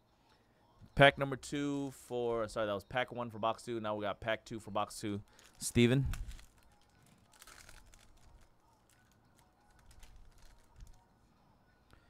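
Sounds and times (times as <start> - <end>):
foil wrapper crinkling and tearing: 5.2 - 11.1.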